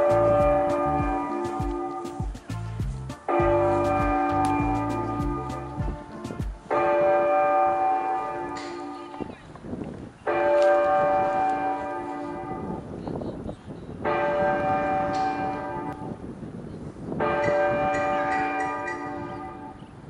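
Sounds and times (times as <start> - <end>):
bell-like chime ringing: 17.4 - 19.6.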